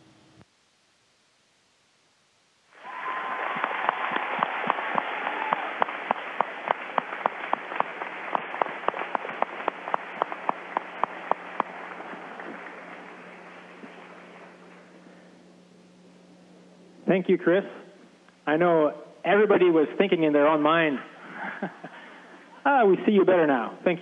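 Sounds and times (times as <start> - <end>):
audience applauding: 2.8 - 14.8.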